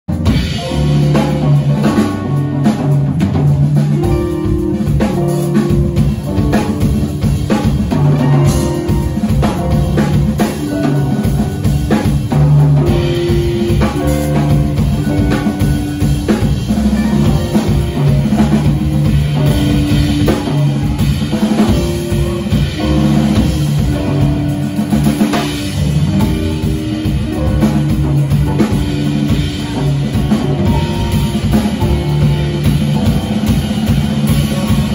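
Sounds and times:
jazz drum solo: 0.1 - 34.9
upright bass and guitar: 0.1 - 34.9.

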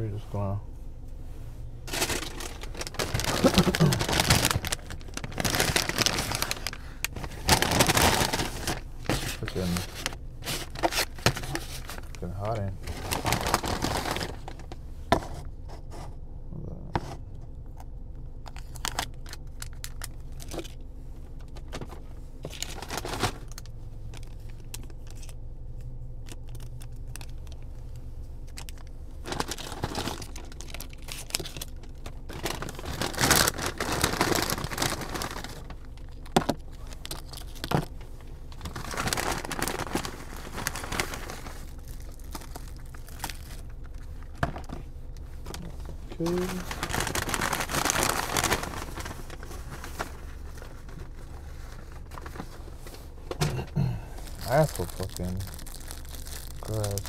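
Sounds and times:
low hum: 0.0 - 57.0
paper bags rustling: 1.8 - 14.8, 21.6 - 25.3, 28.5 - 57.0.

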